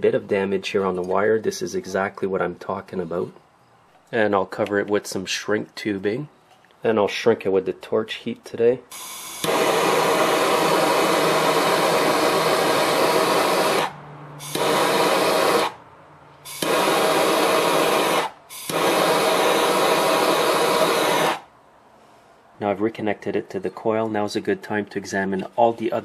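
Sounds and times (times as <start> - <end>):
gas torch hissing: 8.9 - 15.8, 16.4 - 21.5.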